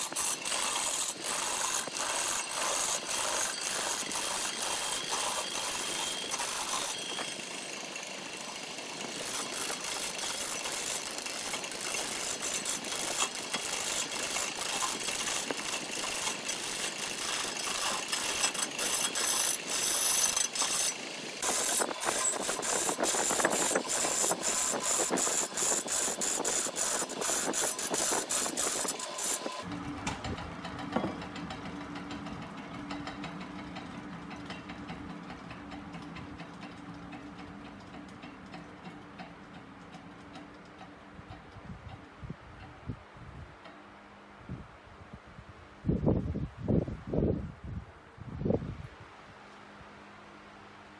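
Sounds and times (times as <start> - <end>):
lathe humming: 0.0 - 37.9
gouge scraping spinning wood: 0.0 - 38.2.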